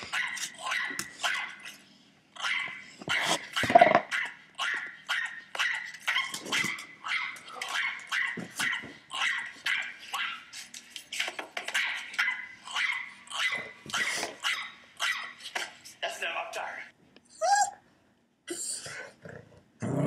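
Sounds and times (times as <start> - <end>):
dog barking: 0.1 - 1.6, 2.4 - 10.4, 11.8 - 15.4.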